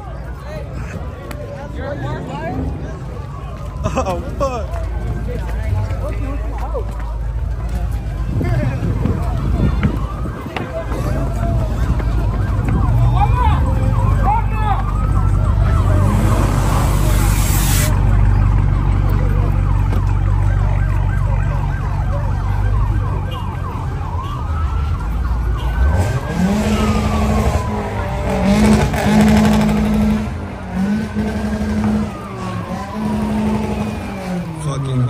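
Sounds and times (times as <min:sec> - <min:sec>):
car engines running: 0:00.0 - 0:35.0
crowd: 0:00.0 - 0:35.0
siren wailing: 0:01.6 - 0:35.0
engine revving: 0:25.7 - 0:35.0.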